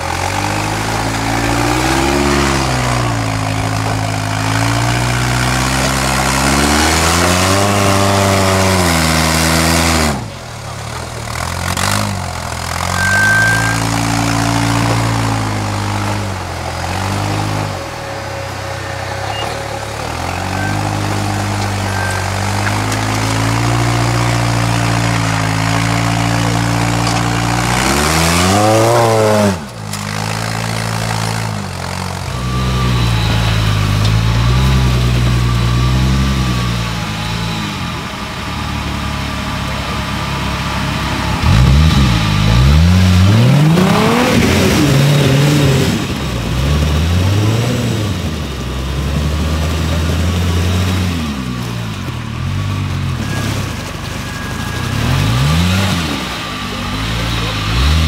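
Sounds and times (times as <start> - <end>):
buggy engine revving: 0.0 - 58.0.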